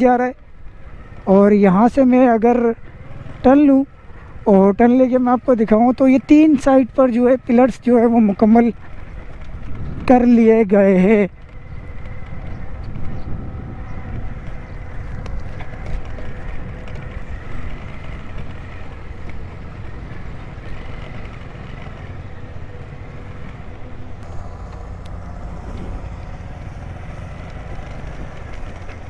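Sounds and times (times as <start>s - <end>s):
drilling rig diesel engines: 0.0s - 29.0s
concrete pump running: 10.8s - 29.0s.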